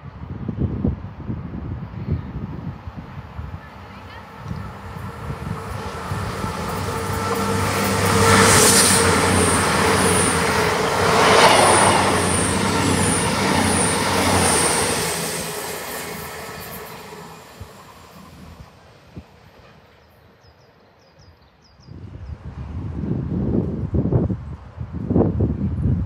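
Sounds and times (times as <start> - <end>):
diesel train engine hum: 1.8 - 20.1
wheels rushing on rail: 2.4 - 20.8.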